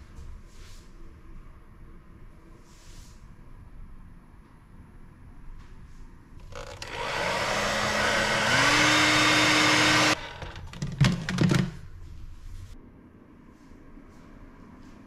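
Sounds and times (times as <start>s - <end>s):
hair dryer blowing: 6.5s - 10.6s.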